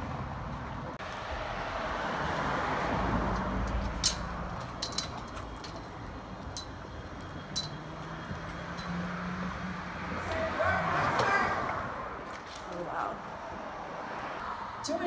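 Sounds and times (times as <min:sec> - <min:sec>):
vehicle passing: 0:00.0 - 0:15.0
metallic clicks and clinks: 0:03.6 - 0:07.9, 0:08.7 - 0:09.0.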